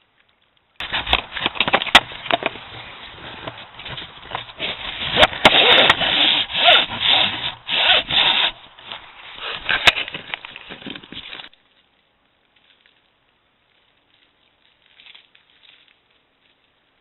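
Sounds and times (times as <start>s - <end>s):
rubbing and scraping on casing: 0.8s - 11.5s.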